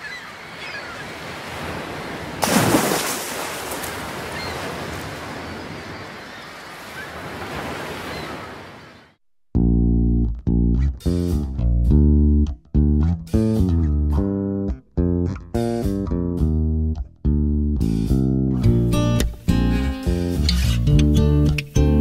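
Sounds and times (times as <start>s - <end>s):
music with bass and guitar: 9.6s - 22.0s.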